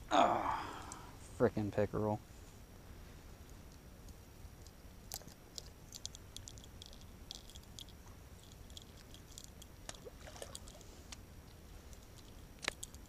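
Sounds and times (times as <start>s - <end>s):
plastic lure clicking: 5.1s - 10.8s, 12.0s - 13.0s.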